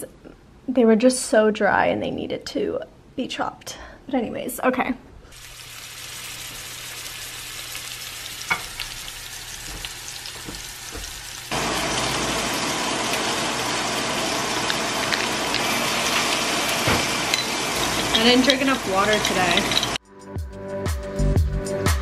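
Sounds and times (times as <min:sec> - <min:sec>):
steaks sizzling in a skillet: 0:05.4 - 0:20.0.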